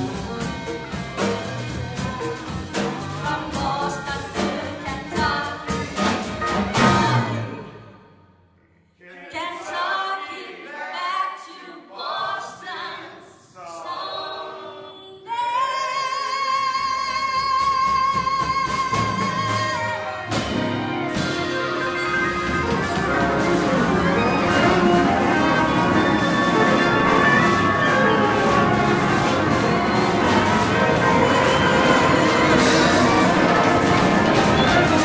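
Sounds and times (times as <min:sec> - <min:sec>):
live band playing: 0:00.0 - 0:08.0, 0:17.1 - 0:35.0
drum hits: 0:20.3 - 0:35.0.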